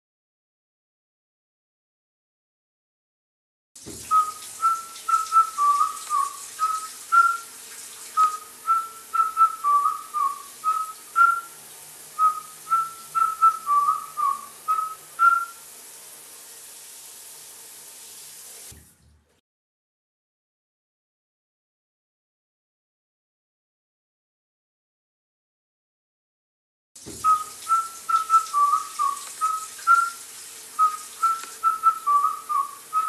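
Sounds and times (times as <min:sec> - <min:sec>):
running shower hiss: 0:03.8 - 0:18.9, 0:27.0 - 0:33.0
person whistling a tune: 0:04.1 - 0:07.5, 0:08.2 - 0:11.6, 0:12.2 - 0:15.6, 0:27.2 - 0:30.2, 0:30.8 - 0:33.0.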